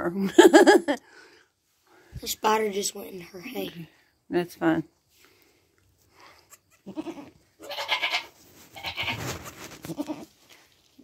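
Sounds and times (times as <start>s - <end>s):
goats bleating: 6.7s - 9.2s, 9.8s - 10.3s.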